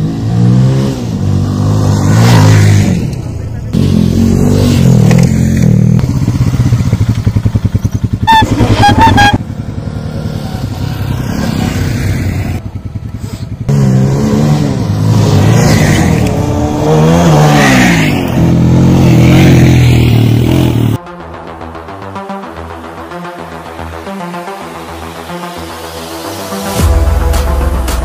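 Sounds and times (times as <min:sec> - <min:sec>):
motorcycle engine revving: 0:00.0 - 0:21.0.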